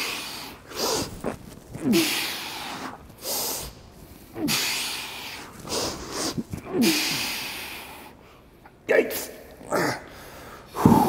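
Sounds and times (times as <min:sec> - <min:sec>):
man grunting and exhaling: 0:01.8 - 0:02.7, 0:06.6 - 0:07.8, 0:09.6 - 0:11.0.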